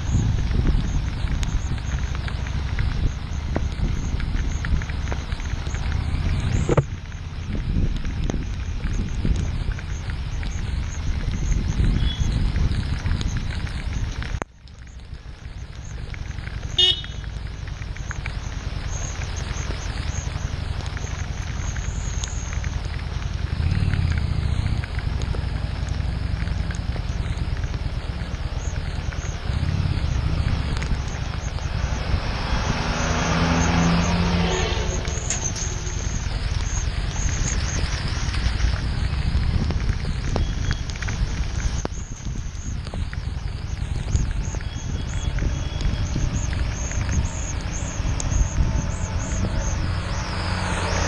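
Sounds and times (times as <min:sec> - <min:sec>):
wind noise on microphone: 0:00.0 - 0:51.0
motorcycle engine running: 0:15.1 - 0:40.3.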